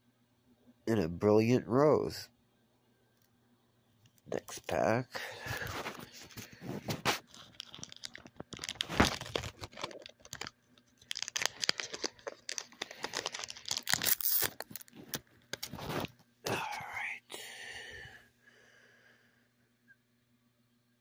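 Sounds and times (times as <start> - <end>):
foil wrapper tearing and crinkling: 5.5 - 16.1.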